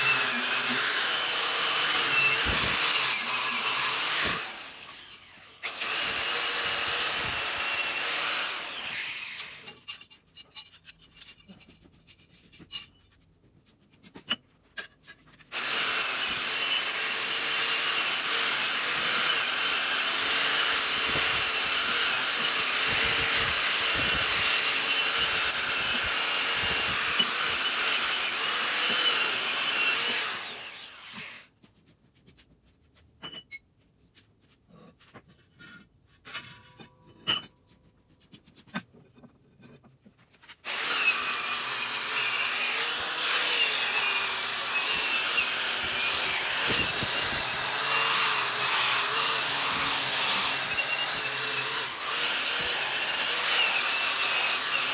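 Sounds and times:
angle grinder whining: 0.0 - 9.8, 15.5 - 31.4, 40.6 - 54.9.

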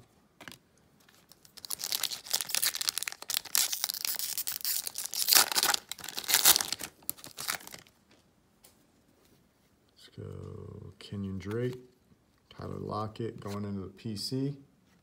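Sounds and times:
card pack wrapper tearing: 1.3 - 7.9.

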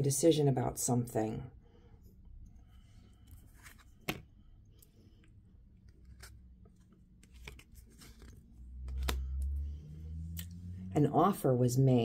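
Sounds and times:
low steady hum: 0.0 - 12.0
cards clicking and tapping: 3.7 - 4.3, 5.9 - 9.5.

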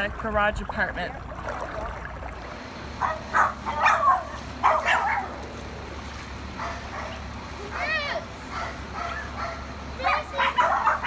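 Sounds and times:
dog barking: 3.0 - 5.4, 6.6 - 7.2, 8.5 - 9.7, 10.4 - 11.0.

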